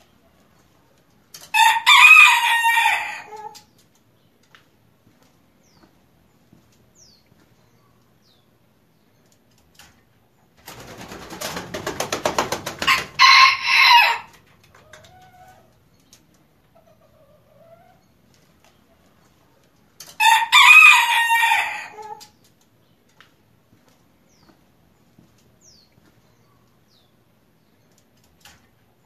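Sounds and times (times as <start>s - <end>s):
rooster crowing: 1.5s - 3.4s, 12.9s - 14.3s, 20.2s - 22.2s.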